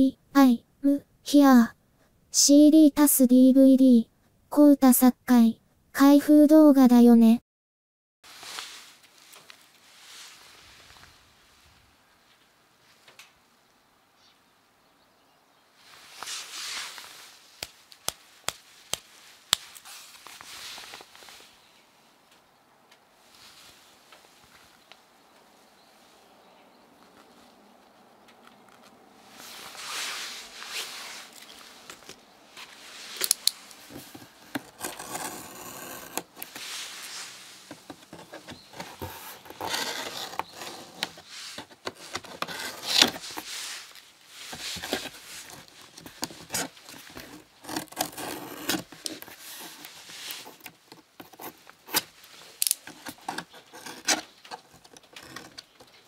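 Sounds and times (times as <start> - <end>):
blade slitting packing tape: 34.3 - 36.7, 41.9 - 43.5, 44.5 - 55.8.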